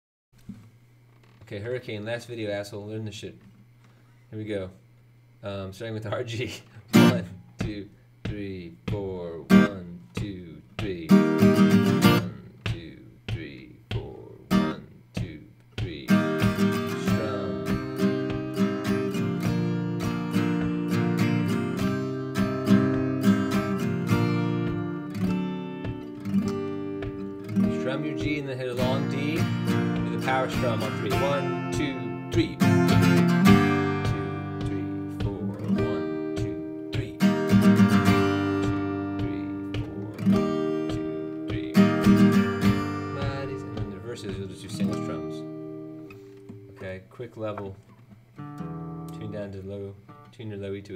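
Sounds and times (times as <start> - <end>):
acoustic guitar strumming: 6.4 - 50.8.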